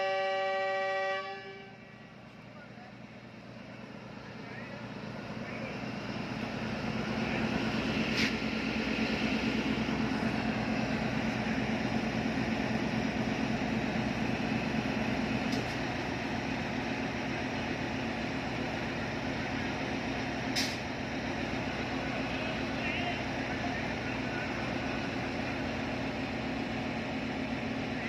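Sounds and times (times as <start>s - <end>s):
diesel locomotive idling: 0.0s - 28.0s
short sharp click: 20.6s - 20.8s.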